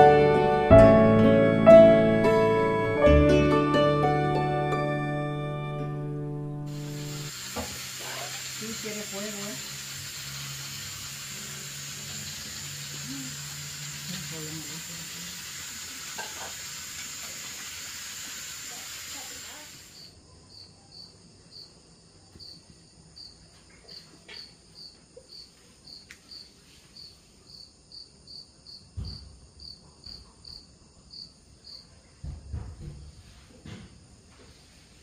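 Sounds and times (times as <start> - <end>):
steam hissing from pot: 6.7 - 20.1
cricket chirping: 19.2 - 32.4.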